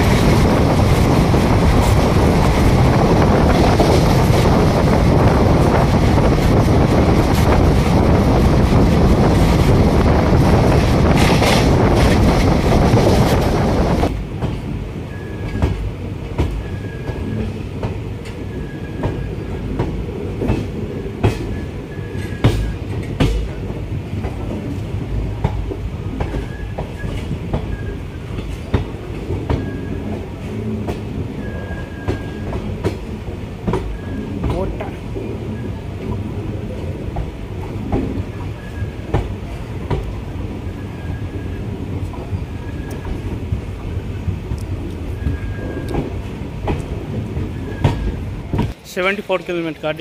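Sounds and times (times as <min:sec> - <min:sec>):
loud rush of wind: 0:00.0 - 0:15.1
low rumble of train coaches: 0:00.0 - 0:50.0
faint wheel squeals: 0:18.5 - 0:19.4, 0:26.3 - 0:28.1, 0:29.6 - 0:30.0, 0:31.4 - 0:32.6, 0:33.9 - 0:34.3, 0:40.7 - 0:41.6, 0:45.2 - 0:46.0, 0:47.5 - 0:48.2.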